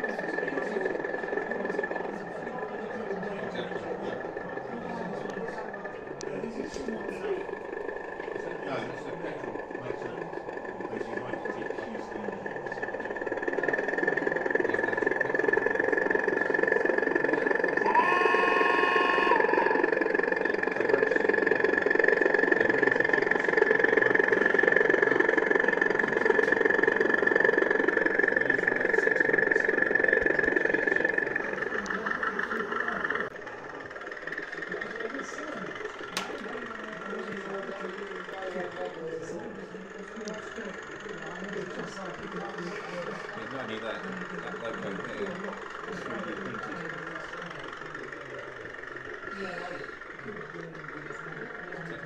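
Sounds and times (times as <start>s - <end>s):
crowd chatter: 0.0s - 52.0s
model locomotive engine sound: 0.0s - 52.0s
locomotive horn: 17.8s - 19.8s.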